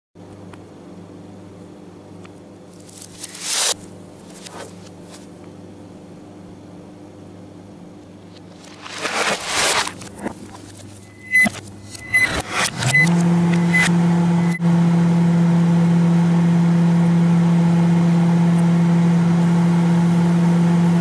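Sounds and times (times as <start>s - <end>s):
steady low hum: 0.2s - 14.6s
reversed rustling and scraping: 2.8s - 5.3s, 8.3s - 13.8s.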